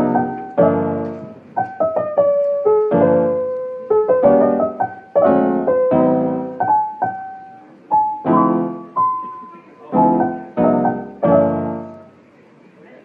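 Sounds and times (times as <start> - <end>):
gentle piano music: 0.0 - 12.2.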